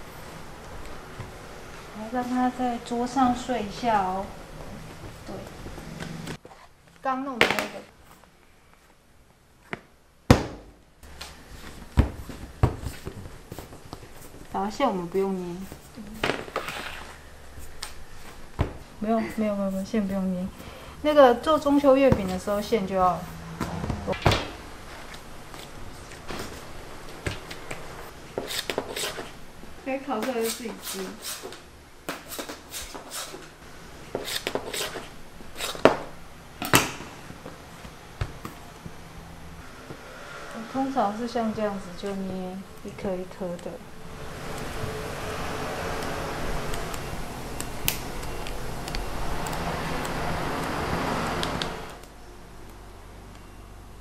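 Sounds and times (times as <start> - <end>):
dough knocking and rubbing: 9.7 - 29.4.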